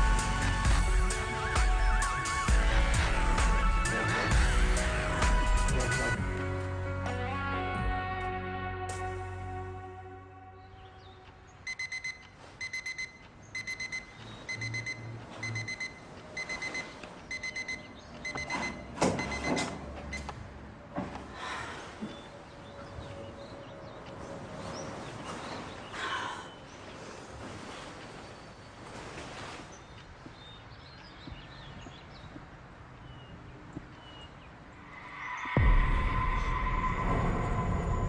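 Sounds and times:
alarm clock beeping: 0:11.6 - 0:20.3
rustling: 0:26.7 - 0:30.6.

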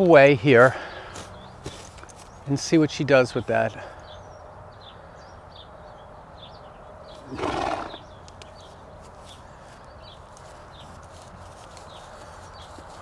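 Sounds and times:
faint birds chirping: 0:00.0 - 0:13.0
horse snorting: 0:07.2 - 0:08.0.

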